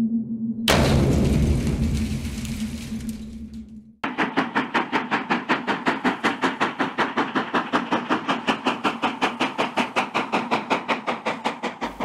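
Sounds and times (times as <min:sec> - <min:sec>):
steam locomotive chuffing: 0:04.0 - 0:12.0.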